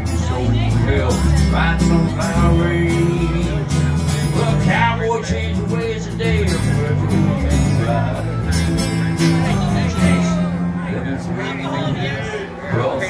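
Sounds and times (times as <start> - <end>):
acoustic guitar strumming: 0.0 - 13.0
man singing country song: 0.0 - 13.0.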